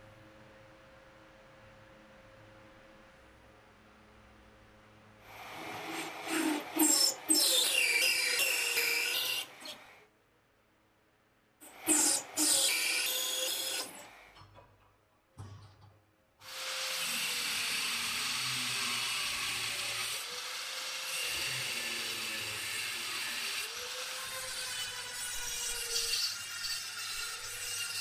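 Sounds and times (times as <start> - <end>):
power tool grinding metal: 5.6 - 9.9, 11.6 - 14.1, 16.4 - 28.0
drill press boring into brass: 11.6 - 14.1.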